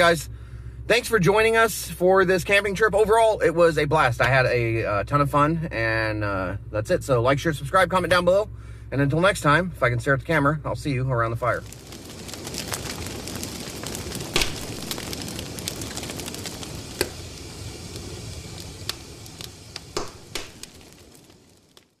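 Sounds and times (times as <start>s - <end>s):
campfire crackling and hissing: 0.0s - 22.0s
fire popping: 10.7s - 22.0s.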